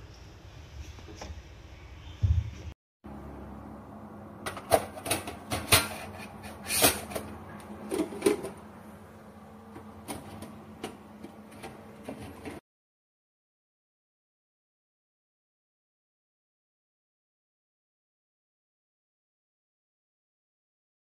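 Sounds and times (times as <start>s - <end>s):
steady low hum: 1.8s - 12.6s.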